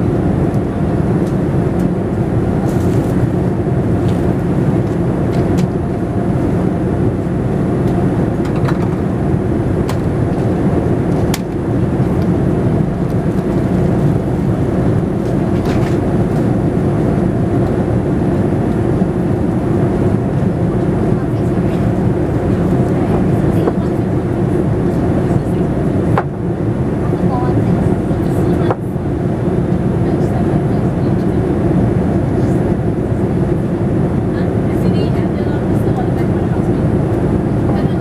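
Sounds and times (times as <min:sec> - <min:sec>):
airliner cabin drone: 0:00.0 - 0:38.0.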